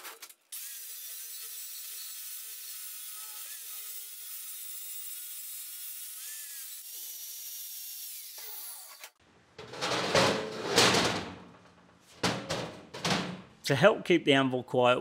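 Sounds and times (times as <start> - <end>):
angle grinder grinding metal: 0.5 - 9.2.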